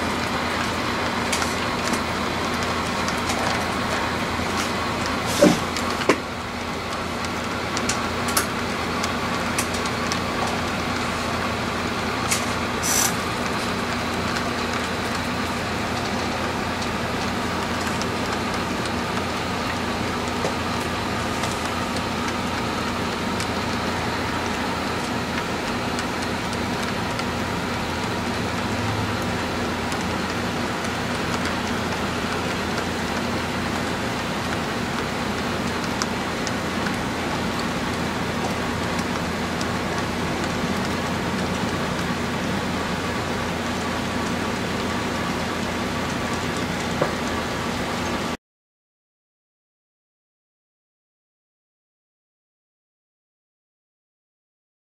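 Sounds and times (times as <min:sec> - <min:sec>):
model train wheels hissing on rail: 0:05.2 - 0:05.7, 0:12.3 - 0:13.5.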